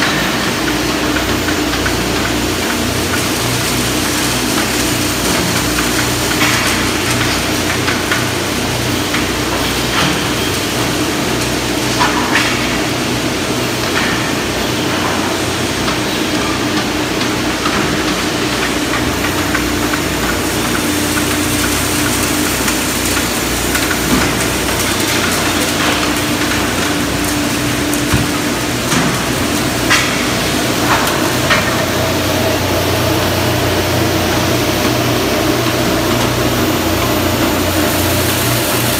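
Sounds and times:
machine hum with low drone: 0:00.0 - 0:38.9.

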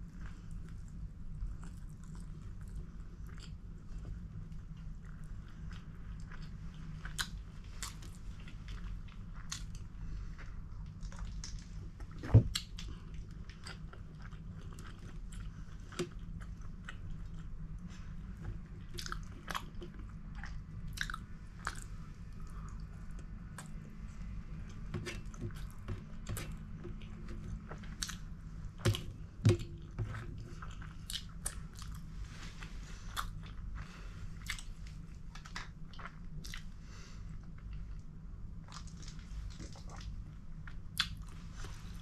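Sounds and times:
low hum: 0:00.0 - 0:42.0
person chewing: 0:12.5 - 0:36.7.

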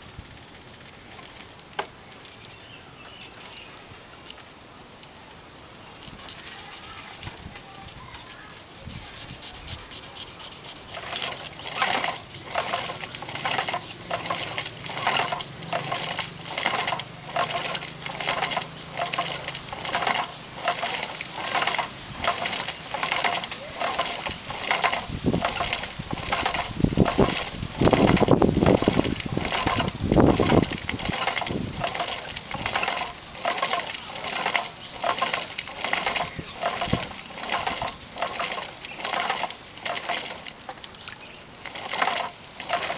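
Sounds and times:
sandpaper rasping on wood: 0:08.2 - 0:40.4.

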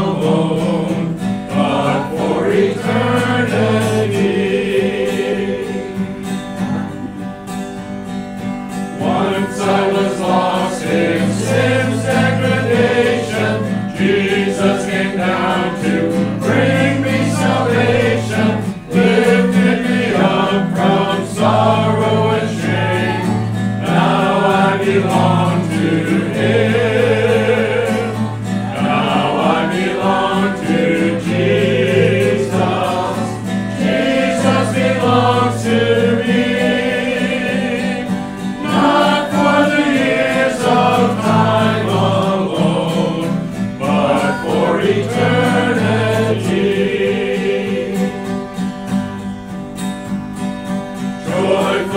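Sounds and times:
congregation singing a hymn: 0:00.0 - 0:51.9
strummed guitar: 0:00.0 - 0:51.9.

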